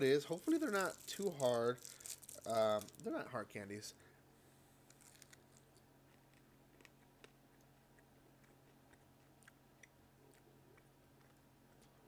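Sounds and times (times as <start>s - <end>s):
low room hum: 0.0s - 12.0s
mouth chewing clicks: 6.1s - 12.0s.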